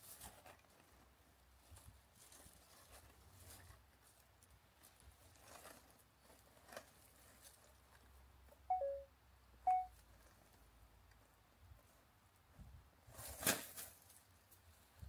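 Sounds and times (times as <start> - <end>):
rustling of dry twigs and leaves: 0.0 - 8.6, 9.9 - 15.0
short pure-toned beeps: 8.7 - 9.1, 9.7 - 9.9.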